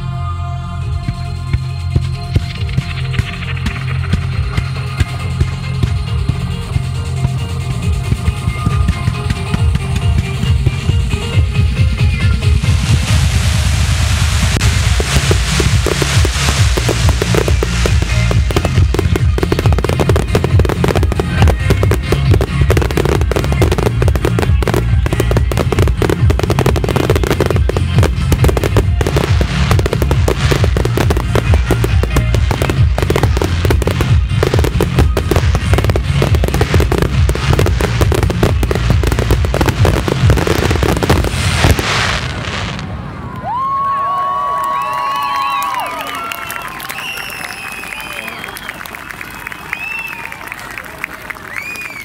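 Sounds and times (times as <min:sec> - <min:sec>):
firework crackling: 0:02.4 - 0:52.0
firework shells bursting: 0:14.6 - 0:42.4.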